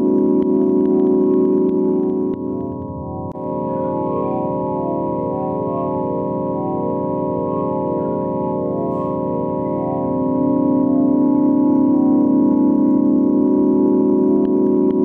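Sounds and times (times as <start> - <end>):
synthesized organ-like drone: 0.0 - 15.0.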